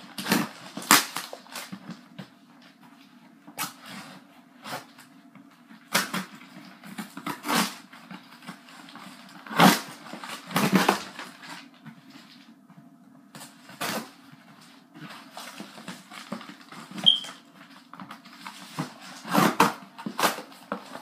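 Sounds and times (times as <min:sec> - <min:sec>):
package being torn open: 0:00.1 - 0:01.8.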